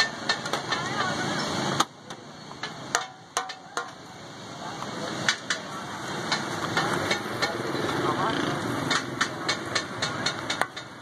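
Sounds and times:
rolling pin clacking on steel: 0:02.6 - 0:04.0, 0:08.8 - 0:11.0.

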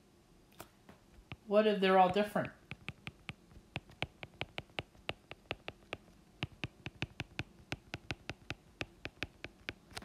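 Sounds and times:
stylus tapping on glass screen: 0:02.0 - 0:09.9.

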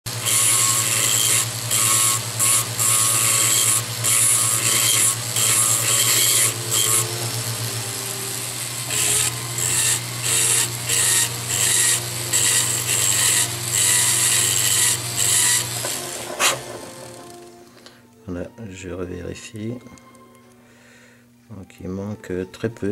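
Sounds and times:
rotary tool humming: 0:00.1 - 0:17.9.

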